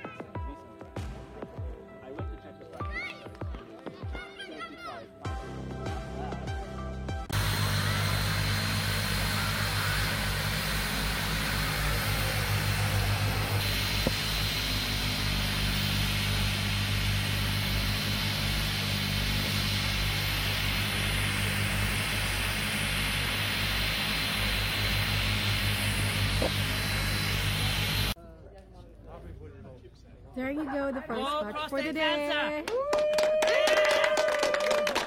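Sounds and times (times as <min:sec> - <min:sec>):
turboprop engines idling: 0:07.3 - 0:28.2.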